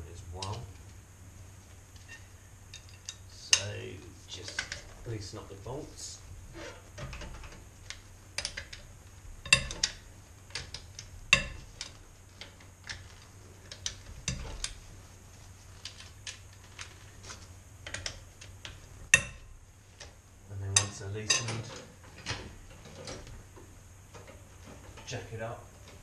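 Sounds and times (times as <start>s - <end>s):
metallic clicks and clanks: 4.4s - 5.0s, 7.0s - 14.8s, 20.7s - 23.3s.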